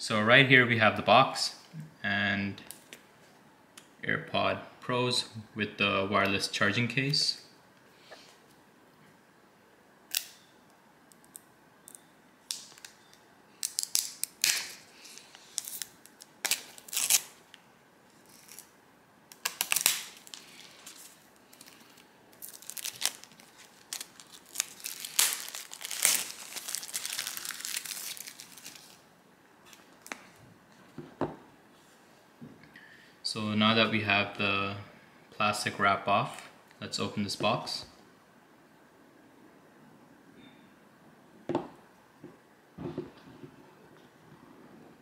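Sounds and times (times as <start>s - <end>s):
plastic wrap crinkling and ripping: 13.6s - 17.5s, 18.1s - 18.7s, 19.3s - 29.1s.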